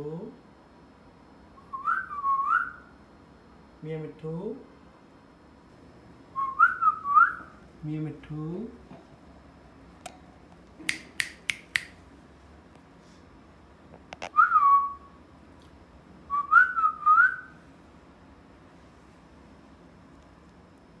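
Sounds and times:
parakeet clicks: 10.8s - 12.0s.

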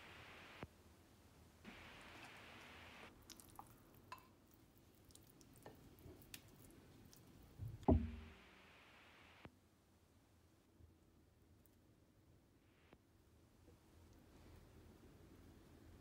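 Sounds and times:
knock on baking dish: 7.9s - 8.3s.

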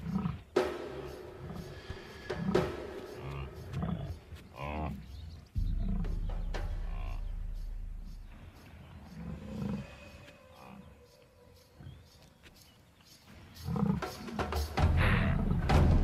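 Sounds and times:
lioness growling: 1.4s - 7.4s.

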